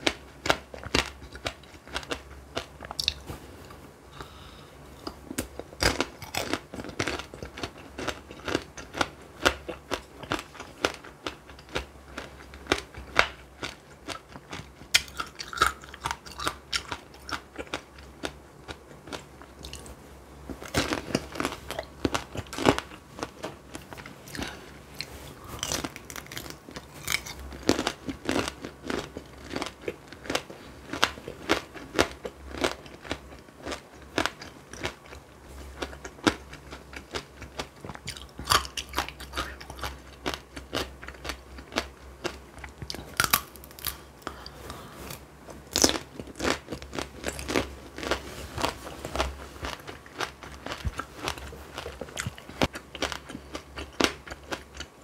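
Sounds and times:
wet chewing: 45.5s - 55.0s.

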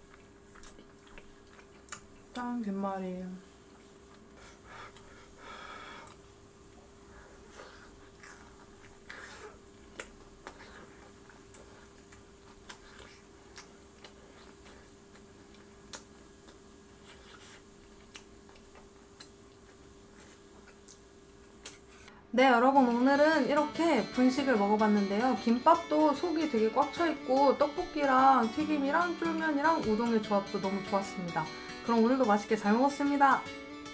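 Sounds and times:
wet chewing clicks: 0.0s - 2.5s, 8.0s - 22.1s
faint steady hum: 0.0s - 33.9s.

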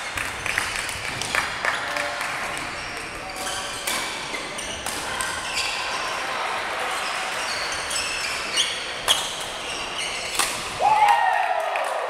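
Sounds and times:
court shoes squeaking: 1.8s - 10.8s
racket hitting shuttlecock: 3.4s - 5.4s, 10.3s - 10.8s.

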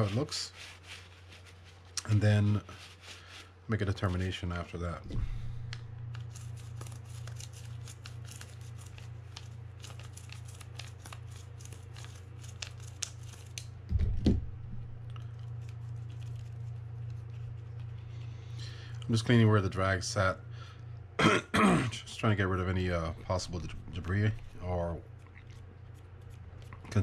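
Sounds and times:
steady low hum: 0.0s - 27.0s
low thump: 5.0s - 5.8s, 13.9s - 15.0s.

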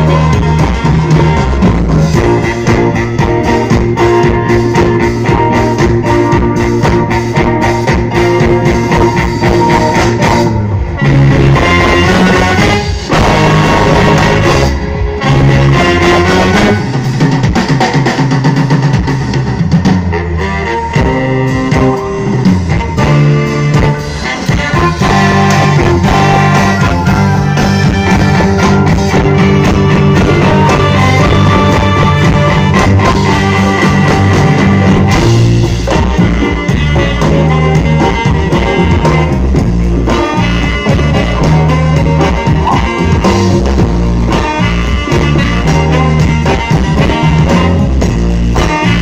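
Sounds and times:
big band playing loud: 0.0s - 49.0s
drums: 0.0s - 49.0s.

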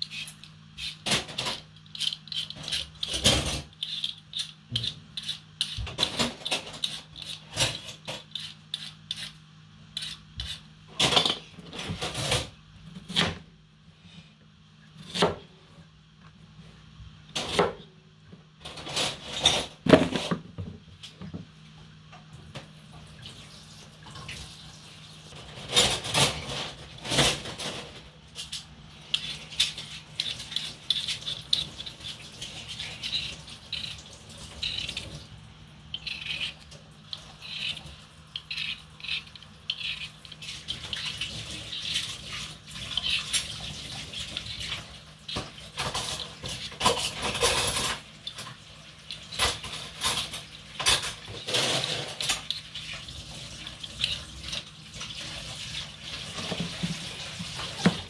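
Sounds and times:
vegetable peeler scraping potatoes: 0.0s - 10.7s, 28.4s - 35.2s, 35.9s - 48.4s, 51.3s - 58.0s.

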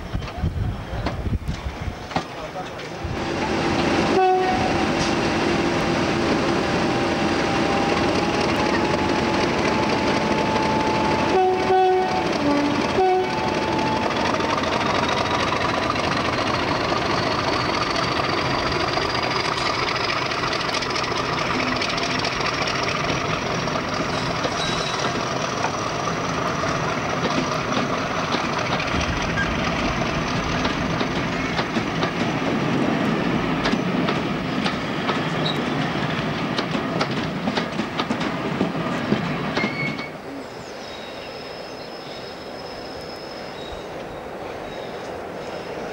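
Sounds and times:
diesel locomotive engine whine: 0.0s - 45.9s
locomotive horn: 3.3s - 5.7s, 9.8s - 14.2s
wheels clicking over rail joints: 14.2s - 32.5s, 33.6s - 40.2s.

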